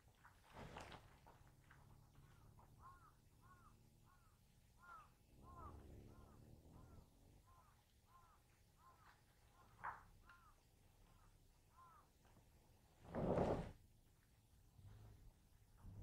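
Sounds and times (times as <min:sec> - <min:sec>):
faint animal calls: 0:01.3 - 0:12.4.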